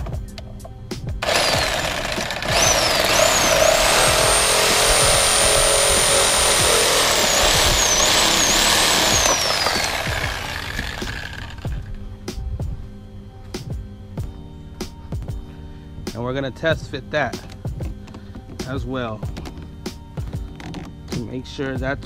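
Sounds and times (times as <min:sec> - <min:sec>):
reciprocating saw cutting pipe: 0:01.2 - 0:11.9.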